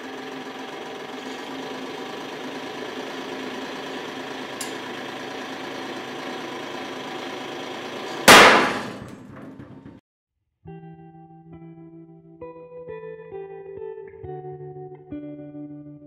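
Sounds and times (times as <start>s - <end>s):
hydraulic pump motor humming: 0.0s - 10.0s
loud metal crack: 6.9s - 10.0s.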